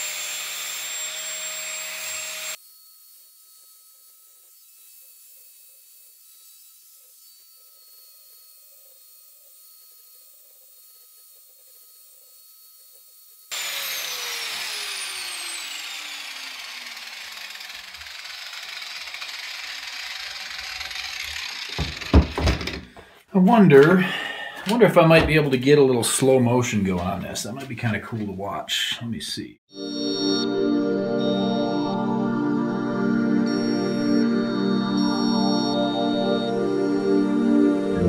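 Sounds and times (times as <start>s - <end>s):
angle grinder whine: 0.0s - 23.0s, 29.7s - 38.0s
grinder disc grinding steel: 0.0s - 23.0s
sharp knocks: 21.8s - 23.0s.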